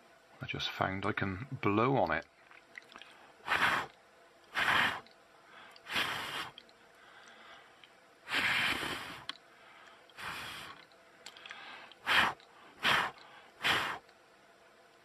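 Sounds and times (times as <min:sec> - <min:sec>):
puffs of breath on microphone: 0:03.4 - 0:03.9, 0:04.5 - 0:07.7, 0:08.3 - 0:10.8, 0:11.4 - 0:14.0.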